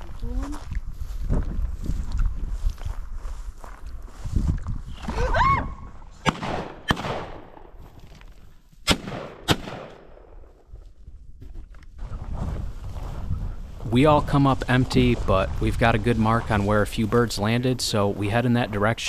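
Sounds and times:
shotgun shots with echo: 6.2s - 7.7s, 8.8s - 10.4s.

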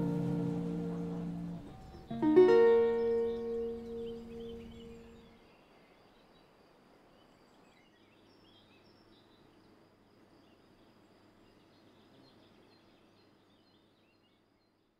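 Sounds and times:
small birds chirping: 0.0s - 5.6s.

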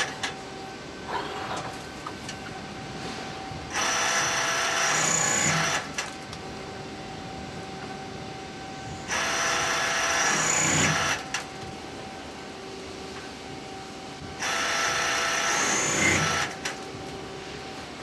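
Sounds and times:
machine drilling metal: 3.7s - 5.8s, 9.1s - 11.2s, 14.4s - 16.6s.

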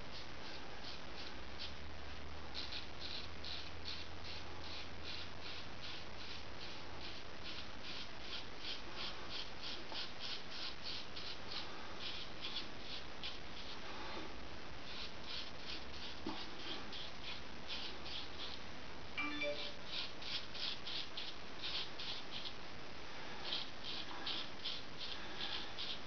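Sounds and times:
razor scraping stubble: 2.5s - 13.8s, 14.9s - 18.6s, 19.5s - 22.6s, 23.4s - 26.0s.

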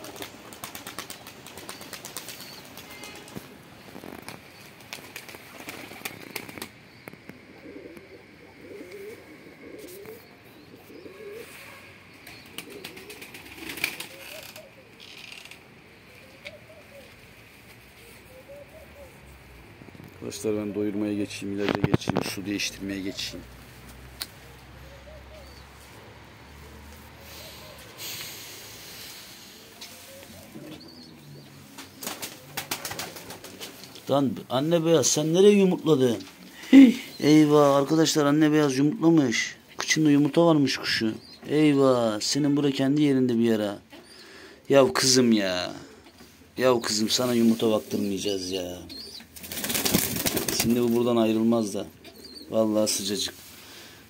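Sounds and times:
sharp wing claps: 0.0s - 3.4s
wings flapping: 0.0s - 7.3s, 12.2s - 15.6s, 31.8s - 34.0s, 49.1s - 51.1s
pigeons cooing: 3.8s - 15.2s, 15.9s - 17.4s, 18.0s - 19.5s, 24.3s - 34.0s, 51.3s - 53.0s
brief hiss: 27.2s - 30.2s.

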